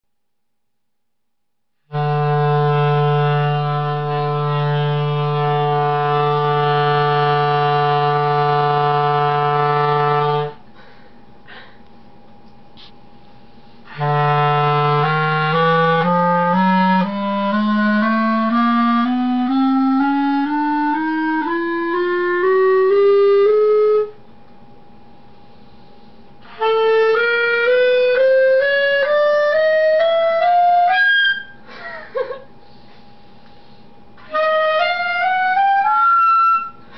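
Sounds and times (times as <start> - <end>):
clarinet playing rising scale: 1.9 - 10.6, 13.9 - 24.2, 26.4 - 31.6, 34.2 - 36.9.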